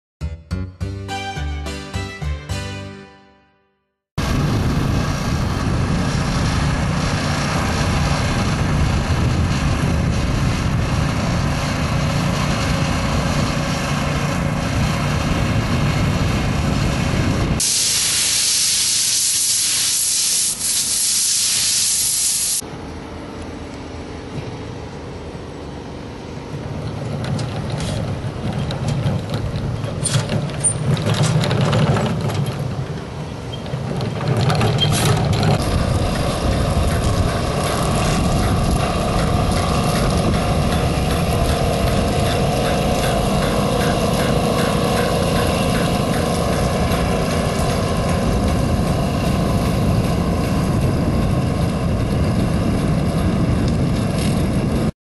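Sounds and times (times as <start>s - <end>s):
quieter machine running: 4.2s - 17.7s, 34.0s - 54.9s
small gasoline engines running: 4.2s - 19.2s, 26.5s - 54.9s
hiss of spraying from hose wand: 17.6s - 22.6s.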